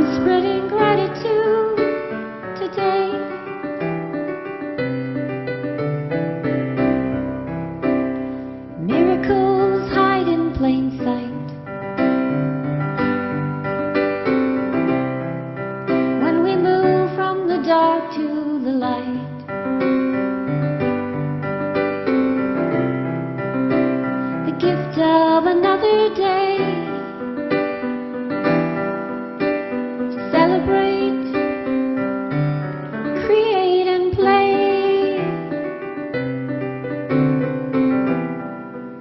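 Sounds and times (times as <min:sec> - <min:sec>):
woman singing: 0:00.0 - 0:03.4, 0:08.8 - 0:11.6, 0:16.2 - 0:19.5, 0:24.4 - 0:27.2, 0:30.2 - 0:31.7, 0:33.0 - 0:35.5
digital piano slow chords: 0:00.0 - 0:39.0.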